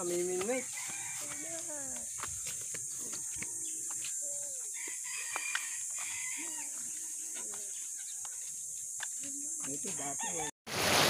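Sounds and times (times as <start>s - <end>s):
roosters crowing: 0.5s - 2.1s, 2.7s - 7.5s, 10.0s - 10.5s.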